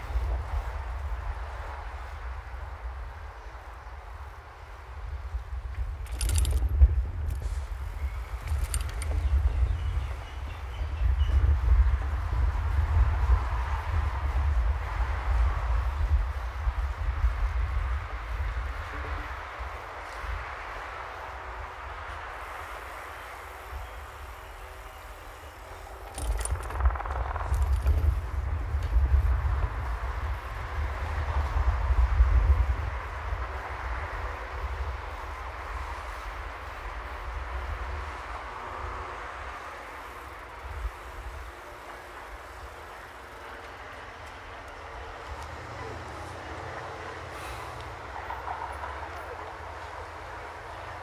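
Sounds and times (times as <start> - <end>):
wind rumble on microphone: 0.0 - 49.0
traffic hiss: 0.0 - 51.0
bicycle rapid ticking: 0.1 - 18.9, 19.6 - 45.6
rattling clicks: 5.9 - 7.5, 8.4 - 9.3, 26.0 - 28.2
deep rumble: 26.2 - 29.8.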